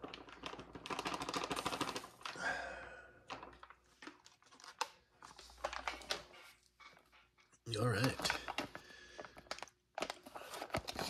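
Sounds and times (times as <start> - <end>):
foil pouch tearing open: 0.0 - 2.4
packaging crinkling: 0.0 - 2.6, 3.2 - 7.1, 7.7 - 11.0.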